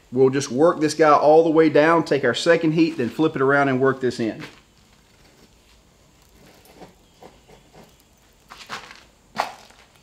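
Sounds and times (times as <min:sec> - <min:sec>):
rod scraping coals: 0:04.2 - 0:10.0.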